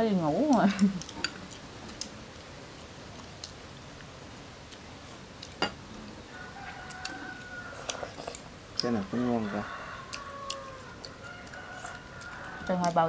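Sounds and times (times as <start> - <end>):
chopsticks clicking on bowls: 7.9 - 9.0.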